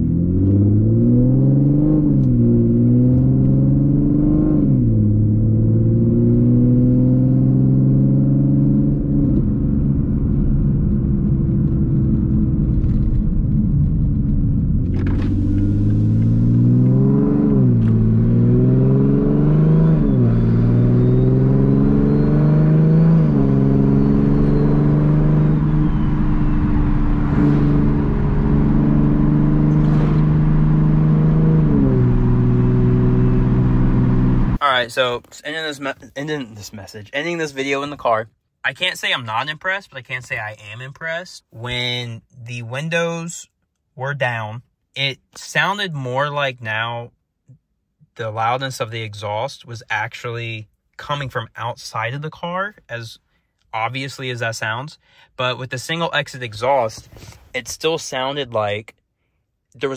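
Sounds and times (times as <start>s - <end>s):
car exhaust drone: 0.0s - 34.6s.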